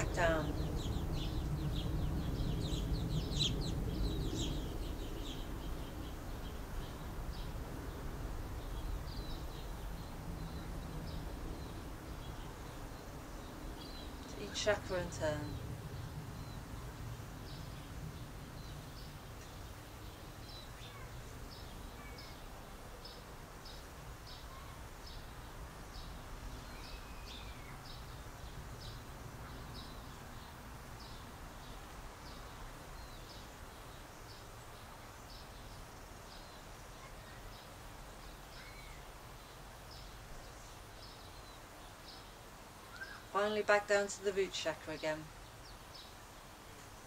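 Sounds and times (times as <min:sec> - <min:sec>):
low rumble: 0:00.0 - 0:06.6
birds chirping: 0:00.0 - 0:47.0
lower curving bird calls: 0:00.0 - 0:47.0.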